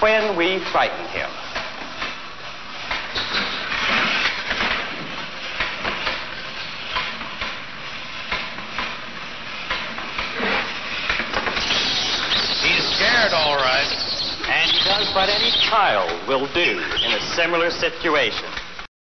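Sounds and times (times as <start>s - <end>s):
mechanical robot rattling: 11.6s - 15.9s.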